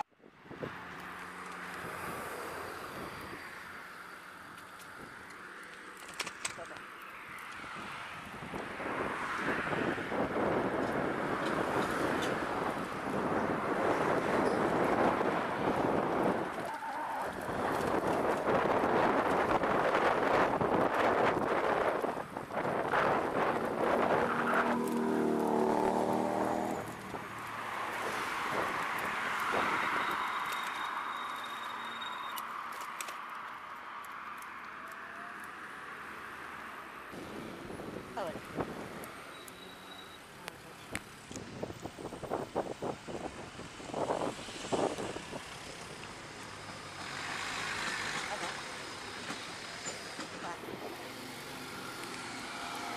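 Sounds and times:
road traffic: 0.0s - 52.9s
rushes of noise: 7.6s - 31.1s
wind on microphone: 7.7s - 27.4s, 41.3s - 45.8s
passing vehicle engine hum: 22.9s - 30.4s, 44.2s - 52.9s.

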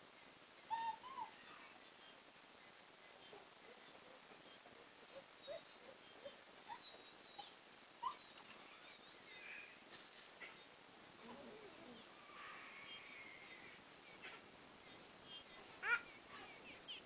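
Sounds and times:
faint high chirps and squeaks: 0.7s - 2.3s, 3.0s - 10.8s.

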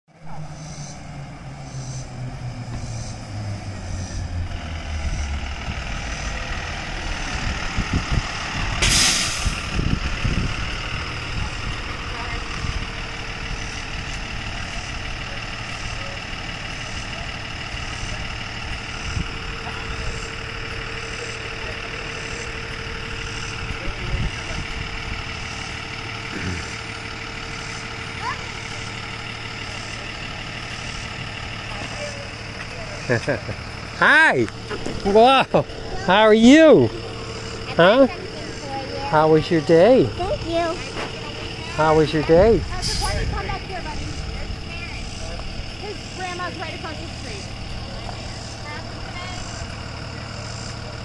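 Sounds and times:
bus engine slowing: 0.1s - 51.0s
air brakes hissing: 8.7s - 10.0s, 42.7s - 43.3s.

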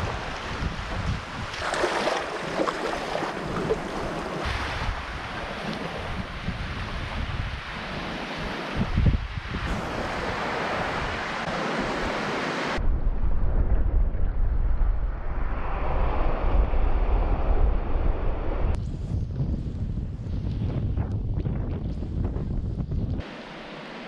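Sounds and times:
sea waves breaking on beach: 0.0s - 12.8s
wind rumble on microphone: 0.0s - 23.5s.

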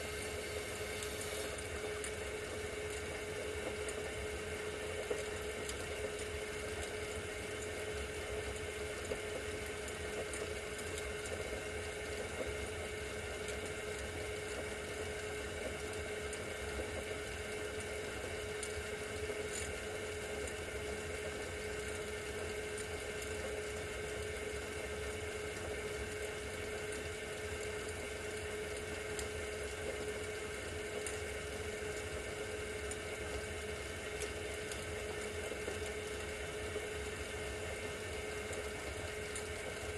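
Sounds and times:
torch flame hissing: 0.0s - 1.6s
steady mid-pitched hum: 0.0s - 39.9s.

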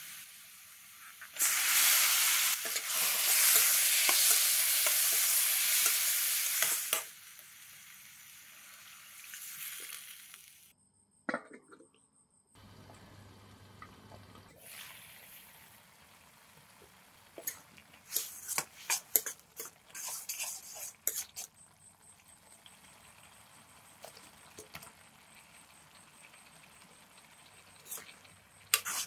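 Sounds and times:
metal ladle scraping wok: 17.4s - 21.5s, 27.8s - 29.0s.

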